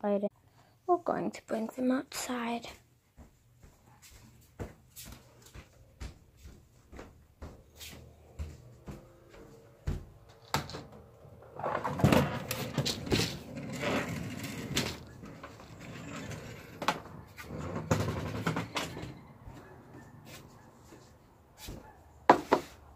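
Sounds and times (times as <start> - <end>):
knocks and rustling: 4.6 - 20.6.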